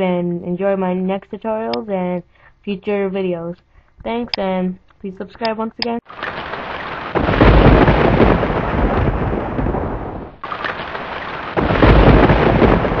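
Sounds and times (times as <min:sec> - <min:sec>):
steady rain hiss: 0:06.1 - 0:13.0
rolling thunder rumble: 0:06.2 - 0:13.0.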